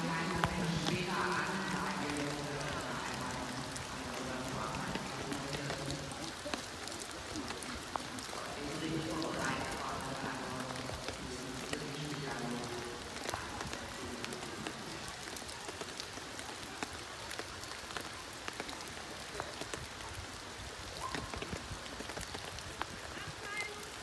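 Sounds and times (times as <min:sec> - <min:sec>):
raindrops ticking: 0:00.0 - 0:24.0
steady rain hiss: 0:00.0 - 0:24.0.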